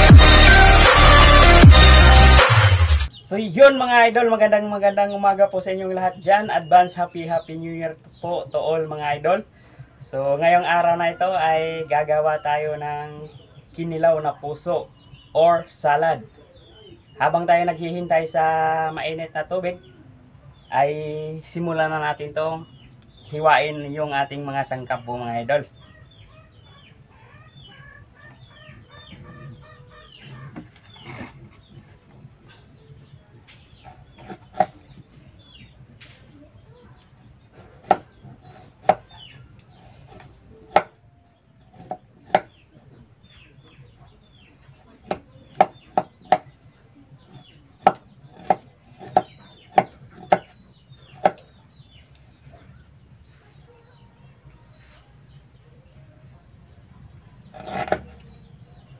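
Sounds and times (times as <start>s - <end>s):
birds chirping: 0.0s - 58.9s
knife chopping on a leaf: 37.6s - 39.2s, 40.0s - 41.0s, 41.7s - 42.6s, 45.0s - 46.5s, 47.3s - 50.6s, 51.2s - 51.5s, 57.5s - 58.1s.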